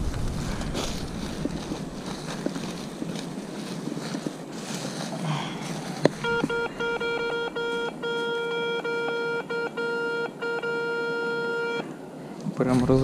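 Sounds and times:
metal detector beeping: 0:06.1 - 0:11.9.

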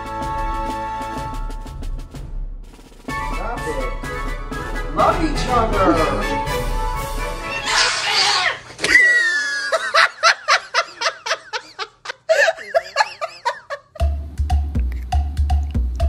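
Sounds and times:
music with low beat: 0:00.0 - 0:07.3, 0:14.0 - 0:16.0
person laughing: 0:08.8 - 0:14.0.

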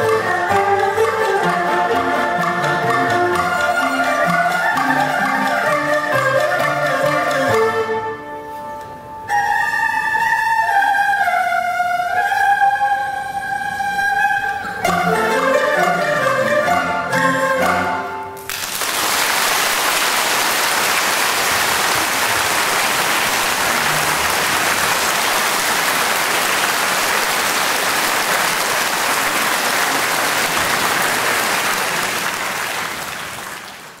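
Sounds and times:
erhu ensemble music: 0:00.0 - 0:34.0
audience applauding: 0:18.4 - 0:34.0.

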